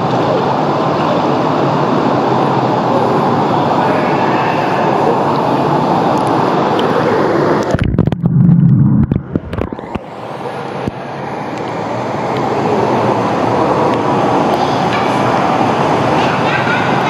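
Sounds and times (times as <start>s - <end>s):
water rushing and churning: 0.0s - 17.0s
muffled underwater bubbling: 7.5s - 10.2s.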